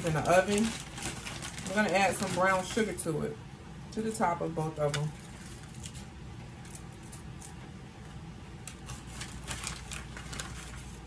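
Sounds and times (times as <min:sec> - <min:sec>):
sugar sprinkling on foil pan: 0:00.0 - 0:03.0
low steady hum: 0:00.0 - 0:11.0.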